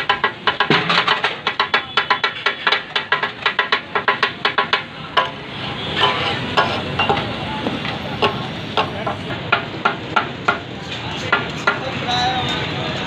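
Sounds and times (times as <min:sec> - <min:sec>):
metal spatulas clacking on griddle: 0:00.0 - 0:07.4.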